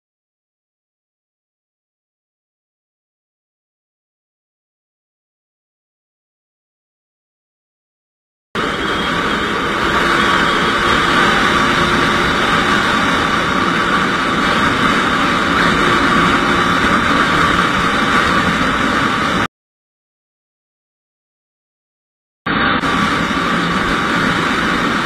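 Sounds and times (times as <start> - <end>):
motorcycle engine: 8.6 - 19.5, 22.5 - 25.0
wind rushing: 8.6 - 19.5, 22.5 - 25.0.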